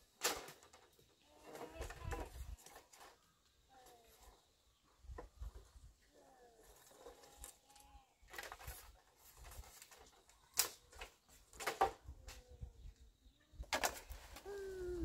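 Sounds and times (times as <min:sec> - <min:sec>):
faint short calls: 0:14.4 - 0:15.0.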